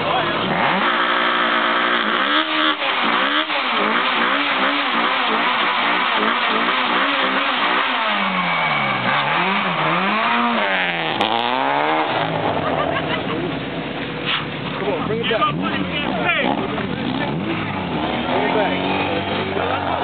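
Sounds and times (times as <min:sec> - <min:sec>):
car engine revving high: 0:00.2 - 0:14.7, 0:15.3 - 0:20.0.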